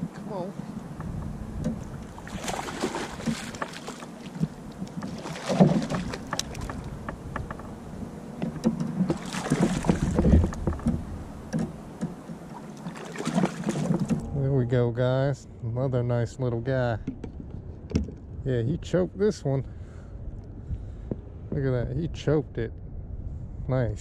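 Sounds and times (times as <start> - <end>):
fish splashing at surface: 2.1 - 6.8, 9.1 - 10.3, 12.6 - 14.2
small clicks and knocks: 4.4 - 7.8.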